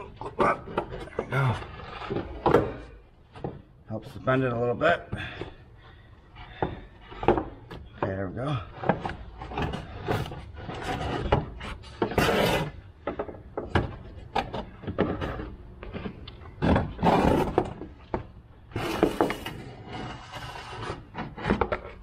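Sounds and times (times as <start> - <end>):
knocks and clatter of parts: 0.0 - 4.2, 6.4 - 19.7
scraping and rustling: 8.6 - 22.0.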